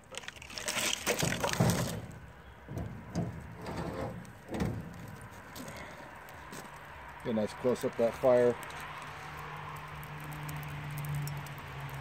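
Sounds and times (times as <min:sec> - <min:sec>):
charcoal scraping and clattering: 0:00.2 - 0:06.0.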